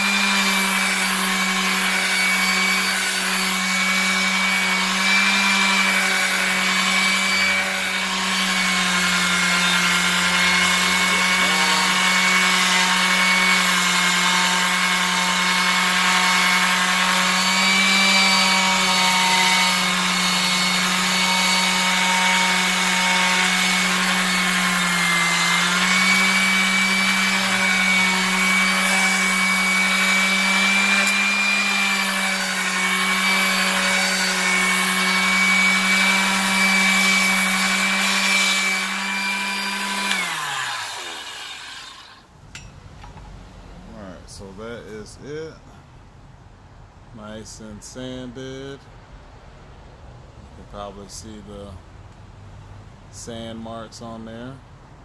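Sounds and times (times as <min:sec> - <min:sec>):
electric palm sander running: 0:00.0 - 0:42.2.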